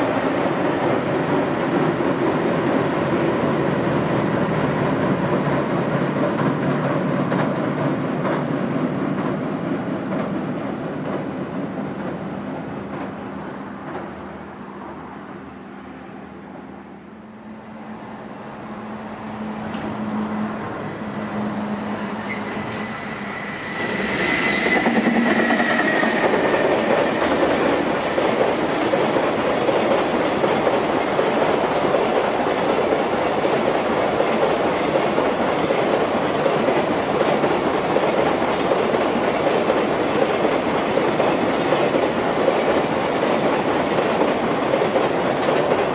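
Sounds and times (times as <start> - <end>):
train rumble on bridge: 0.0 - 45.9
train wheels clattering: 22.2 - 45.9.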